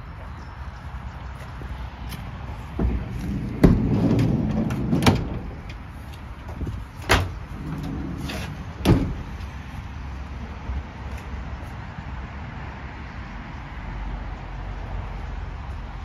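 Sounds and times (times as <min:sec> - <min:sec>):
door moving low rumble: 0:02.1 - 0:09.8
metal latch and door clunks: 0:02.8 - 0:09.4.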